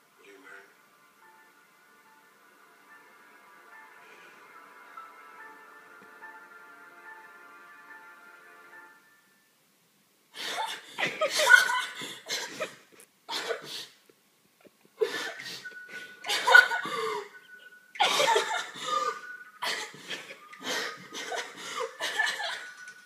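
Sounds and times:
woman sobbing: 10.4s - 13.9s, 15.0s - 22.8s.

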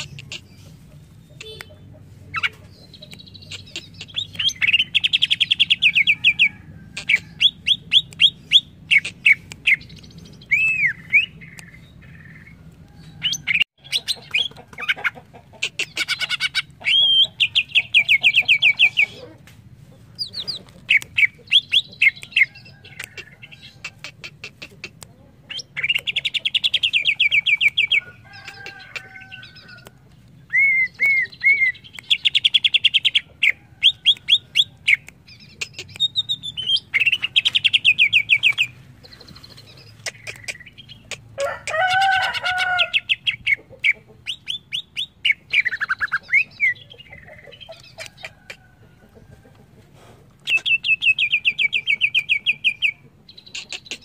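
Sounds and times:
bird chirping: 0.0s - 19.3s, 19.9s - 41.7s, 42.7s - 48.6s, 50.4s - 54.0s
bird whistles: 30.5s - 31.8s.

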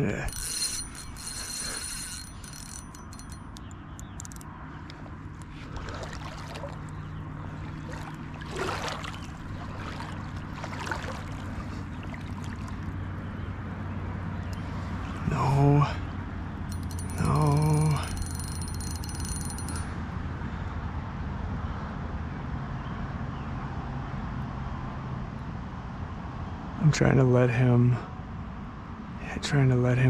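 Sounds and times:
fishing reel ratcheting: 0.0s - 4.5s, 16.7s - 19.9s
water lapping against boat: 4.7s - 15.2s.

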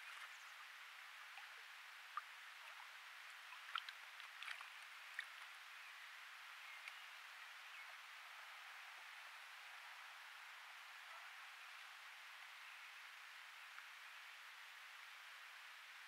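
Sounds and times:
water dripping: 0.0s - 5.6s
steady hiss: 0.0s - 16.0s.

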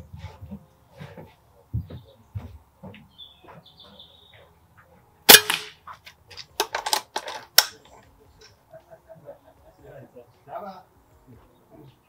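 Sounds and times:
air rifle shot: 5.3s - 5.8s.

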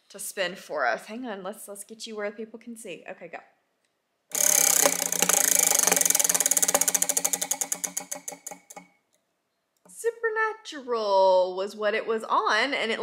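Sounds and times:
prize wheel clicking: 4.3s - 8.9s.

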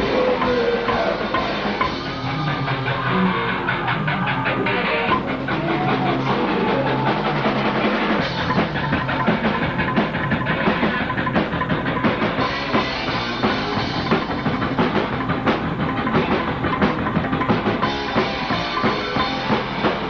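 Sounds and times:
fast driving drum beat: 0.0s - 20.0s
live rock band playing: 0.0s - 20.0s.

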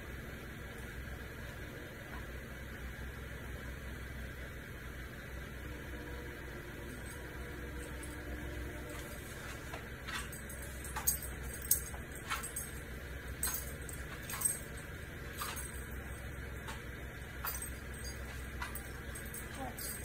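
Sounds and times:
light metallic jingle: 6.9s - 20.0s.

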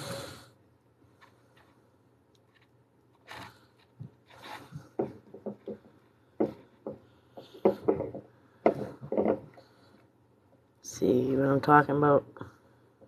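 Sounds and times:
sharp knocks: 4.9s - 9.6s.

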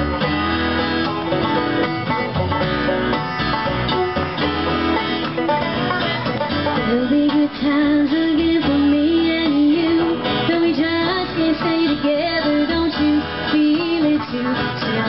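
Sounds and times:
acoustic string band playing: 0.0s - 15.0s
person singing: 6.8s - 15.0s.

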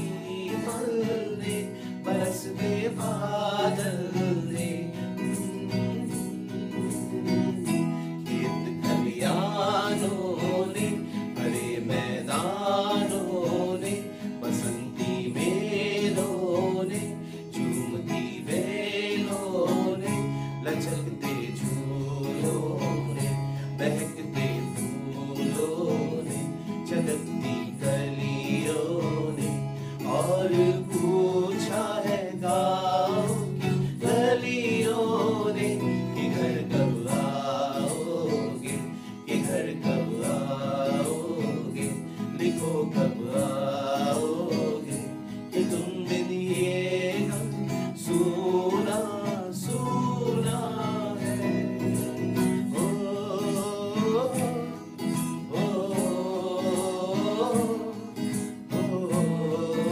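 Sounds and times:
men singing together: 0.0s - 6.2s, 6.9s - 59.9s
strummed acoustic guitar: 0.0s - 59.9s.

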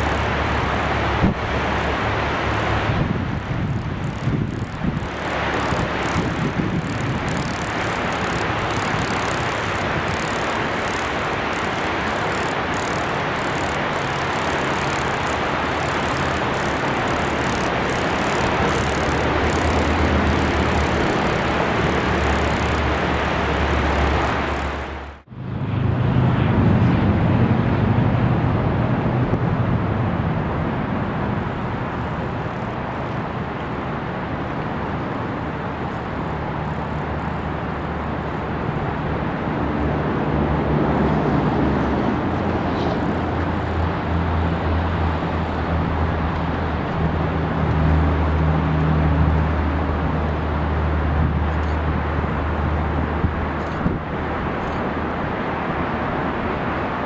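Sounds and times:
low hum: 0.0s - 33.6s.

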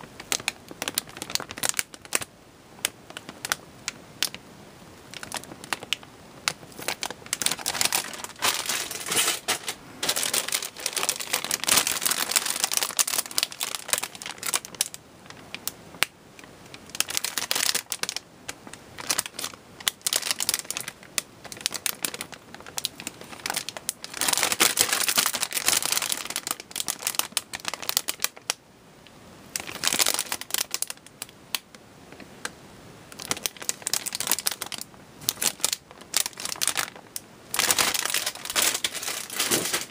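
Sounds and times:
plastic bags crinkling: 0.0s - 4.4s, 5.1s - 16.1s, 16.7s - 28.5s, 29.6s - 31.7s, 33.2s - 39.9s
hard plastic parts clicking: 37.6s - 39.9s.

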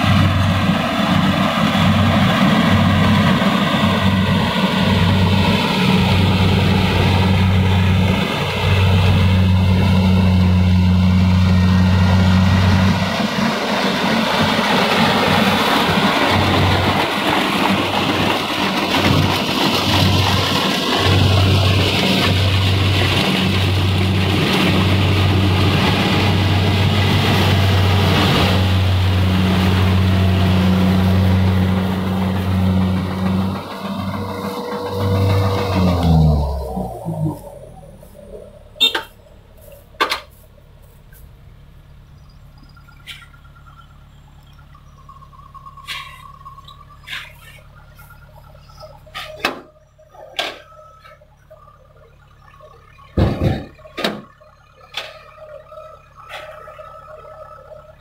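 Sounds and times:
combine harvester engine drone: 0.0s - 58.0s
machinery noise: 0.0s - 58.0s.

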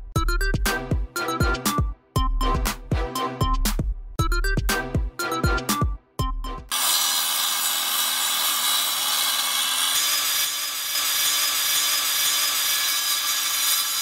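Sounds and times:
tile saw whining and grinding: 6.7s - 14.0s.

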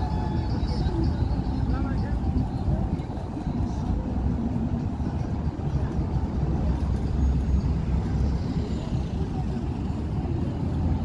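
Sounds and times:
distant road traffic rumble: 0.0s - 11.0s.

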